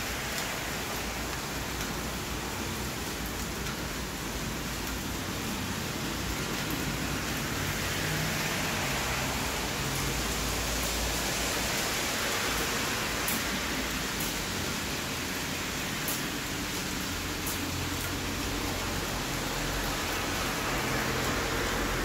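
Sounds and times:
heavy rain on wet ground: 0.0s - 22.0s.

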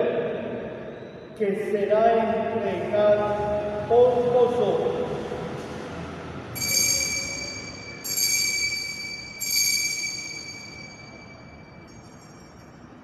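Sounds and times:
altar bell ringing: 6.5s - 13.0s.

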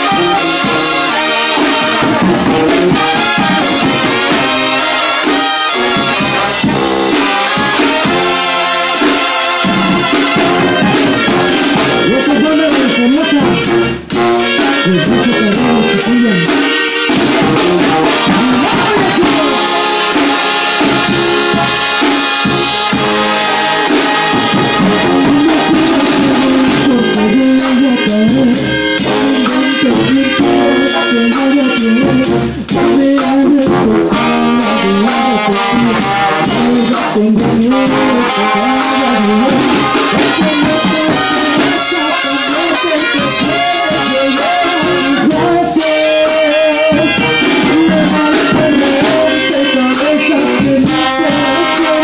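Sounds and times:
brass band playing: 0.0s - 52.0s.

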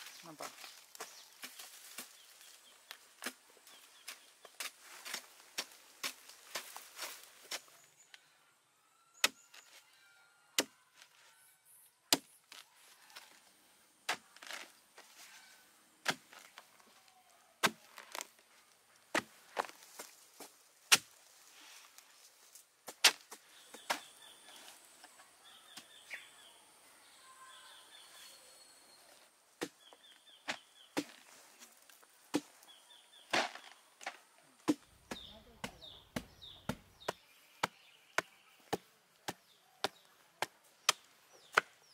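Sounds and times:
scraping rustle of fibres: 19.4s - 22.7s.

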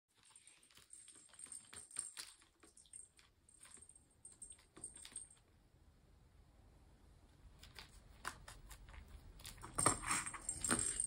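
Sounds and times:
cat toy clicks and rattling: 0.2s - 5.4s
thin high jingle: 9.7s - 11.0s.

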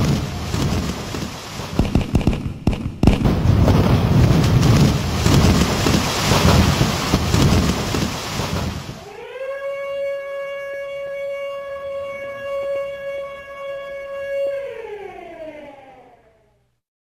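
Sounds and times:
building collapsing crash: 0.0s - 9.1s.

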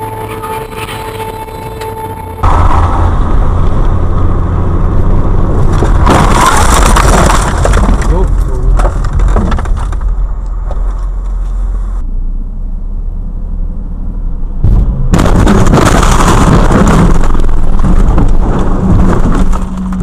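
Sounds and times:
car road and engine noise: 0.0s - 20.0s
loud collision impact: 2.4s - 5.1s
distorted crash noise: 2.4s - 8.2s, 14.6s - 19.6s.

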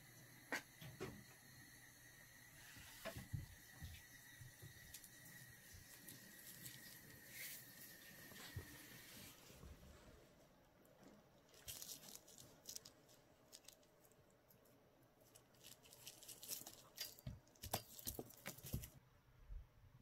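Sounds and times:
bubble wrap crinkling: 5.7s - 8.5s, 11.5s - 19.0s.

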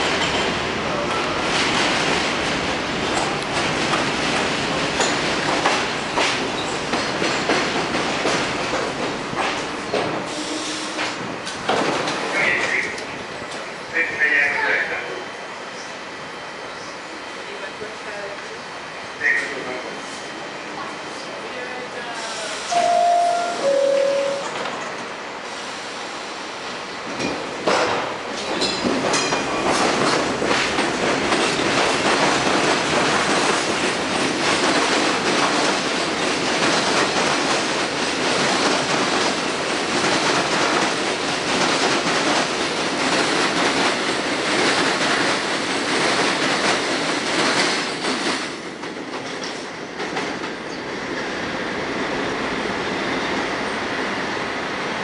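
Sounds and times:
train wheels clattering over rail joints: 3.1s - 12.3s, 27.1s - 50.6s.

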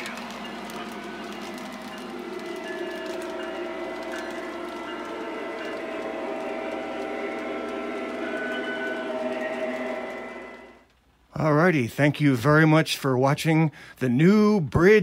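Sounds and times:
model train motor hum: 0.0s - 10.8s.

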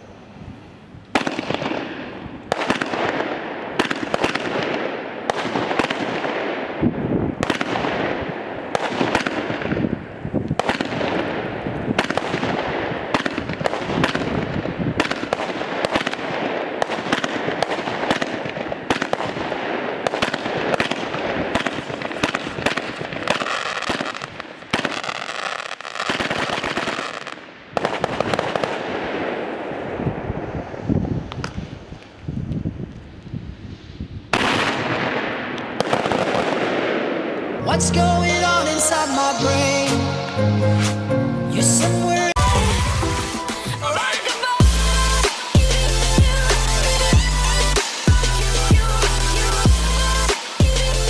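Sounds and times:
fireworks bangs and bursts: 1.1s - 32.1s, 33.8s - 37.6s, 42.4s - 51.0s.

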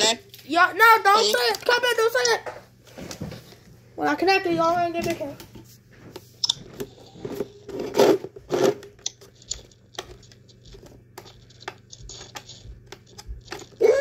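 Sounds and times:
rustling and scraping: 4.5s - 13.8s.

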